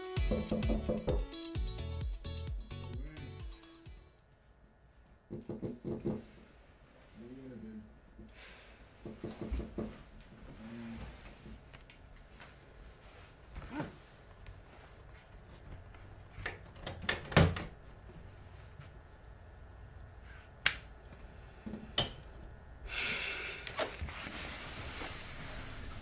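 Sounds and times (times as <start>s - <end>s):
knocks and thuds: 9.0s - 10.0s.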